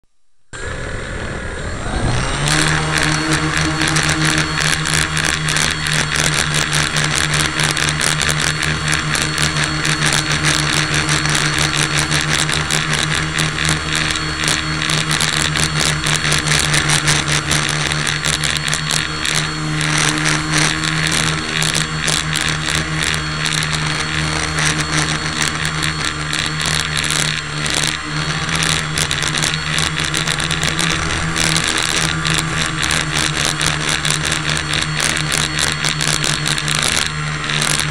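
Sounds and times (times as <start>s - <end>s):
motor humming with rattling buzz: 0.6s - 37.9s.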